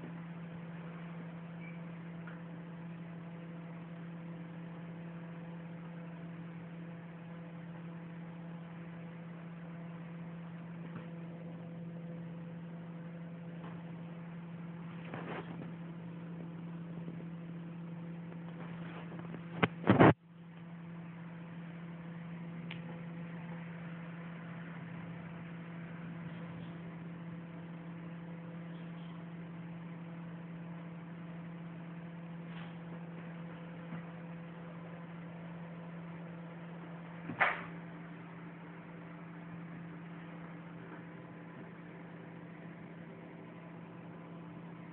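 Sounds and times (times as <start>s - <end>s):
low electrical hum: 0.0s - 44.9s.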